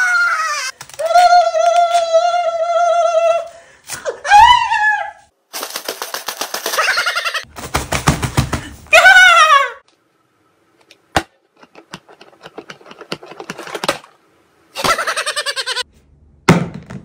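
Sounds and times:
fast fluttering rattle: 5.6s - 7.8s.

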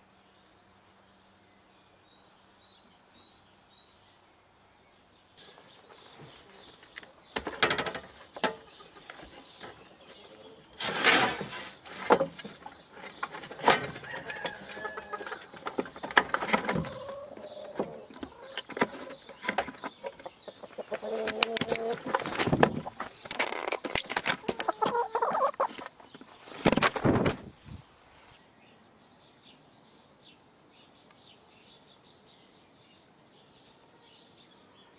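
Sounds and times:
knocks and scratches: 7.4s - 10.2s, 10.8s - 27.5s
hens clucking: 8.1s - 26.2s.

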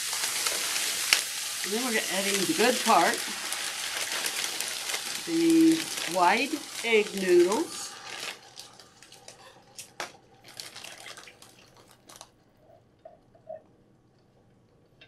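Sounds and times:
broth pouring into a skillet: 0.0s - 9.8s, 10.4s - 12.2s
faint splashing and crackles: 0.0s - 15.0s.

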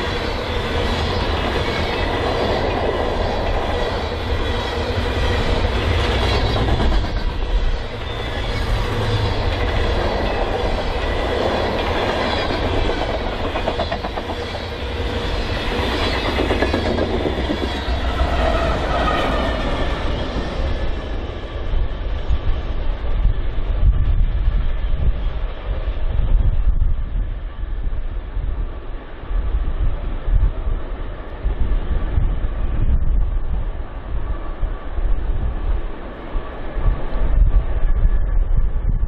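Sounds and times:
train rumble: 0.0s - 39.0s
train wheels clacking over rail joints: 5.6s - 8.1s, 9.0s - 15.0s, 15.8s - 18.6s.

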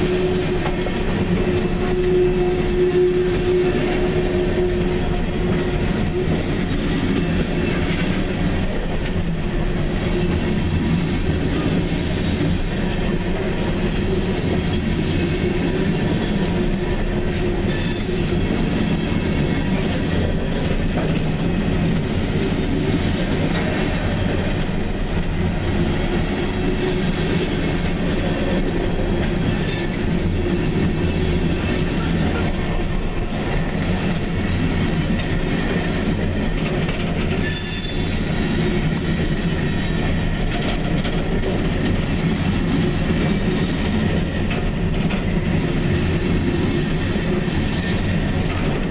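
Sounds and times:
high wheel squeal: 0.0s - 8.4s, 13.6s - 20.2s, 29.2s - 36.4s, 37.3s - 40.4s
freight train rumbling past: 0.0s - 48.9s
wheels clacking over rail joints: 0.0s - 48.9s.

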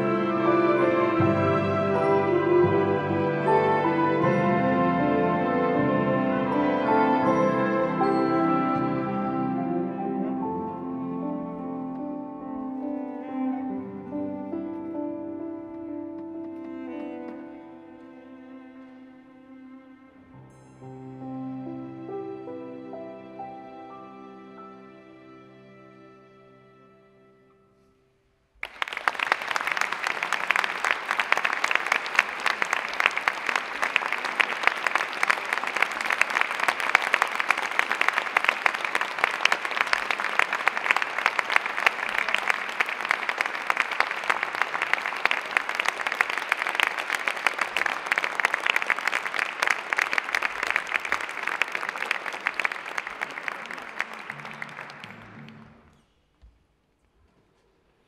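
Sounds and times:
audience applause: 28.6s - 55.9s.

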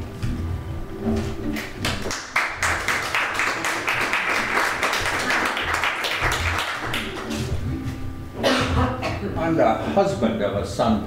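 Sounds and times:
audience applauding: 1.5s - 7.6s.

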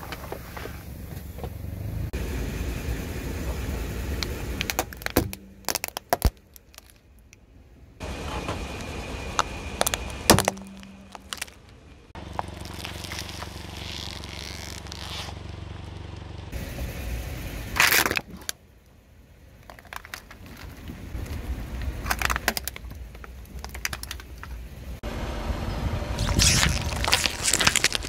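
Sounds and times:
car engine humming: 0.0s - 28.0s
tyre crushing objects: 4.6s - 7.0s, 9.4s - 15.4s, 26.2s - 28.0s.

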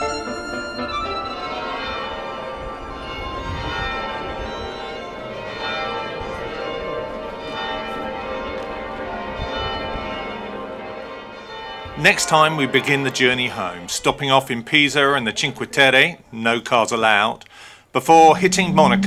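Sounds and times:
church bells ringing: 0.0s - 15.2s.

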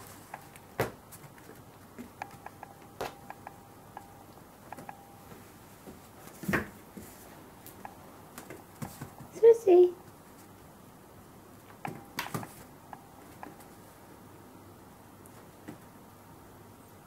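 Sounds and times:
soft taps and thumps on mat: 4.8s - 7.2s, 8.4s - 9.3s.

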